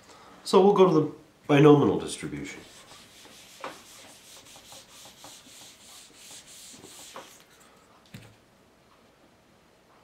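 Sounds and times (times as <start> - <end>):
eraser wiping whiteboard: 2.5 - 7.5.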